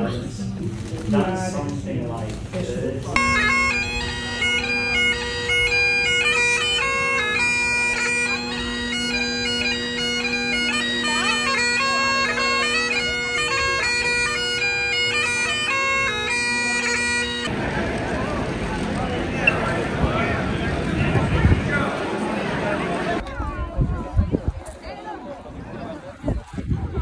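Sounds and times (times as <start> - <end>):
bagpipe drone: 3.1 - 21.4
bagpipe chanter melody: 3.2 - 17.5.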